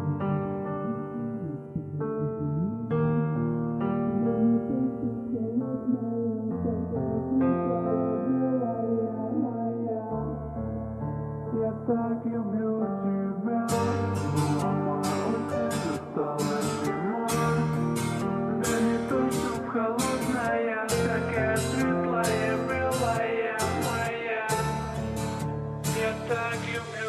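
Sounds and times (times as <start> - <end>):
sustained synth notes: 0.0 - 7.4
slowed-down song: 0.0 - 10.8, 11.4 - 27.0.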